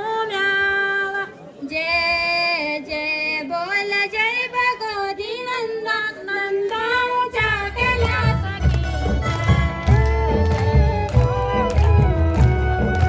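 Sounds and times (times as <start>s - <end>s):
low drumming: 7.4s - 12.9s.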